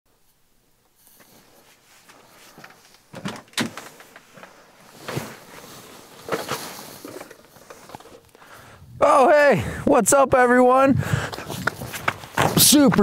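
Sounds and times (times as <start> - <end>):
footsteps on metal ladder: 2.1 - 5.5, 11.4 - 13.0
camper door unlatching and opening: 3.1 - 5.4.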